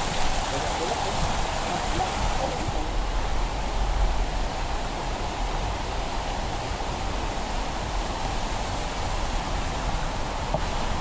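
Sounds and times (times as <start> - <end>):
flowing water rushing: 0.0 - 11.0.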